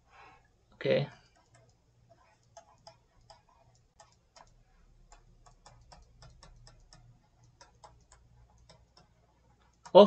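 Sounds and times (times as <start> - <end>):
stylus tapping on tablet screen: 1.2 - 10.0.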